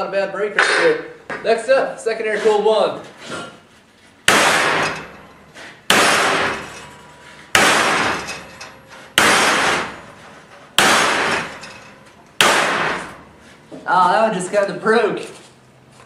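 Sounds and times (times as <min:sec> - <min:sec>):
hammer striking metal ringing: 0:04.3 - 0:10.2.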